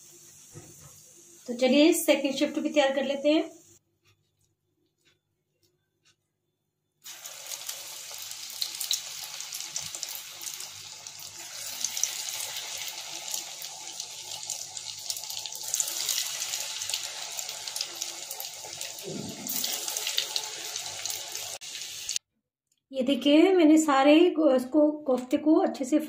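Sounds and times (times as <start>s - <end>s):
deep-frying in hot oil: 0.0s - 3.7s, 7.0s - 22.2s.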